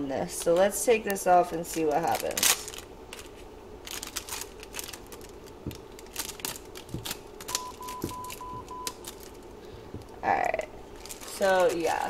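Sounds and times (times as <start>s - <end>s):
tape peeling crackles: 0.3s - 10.1s, 10.9s - 12.0s
short electronic beeps: 7.6s - 8.9s.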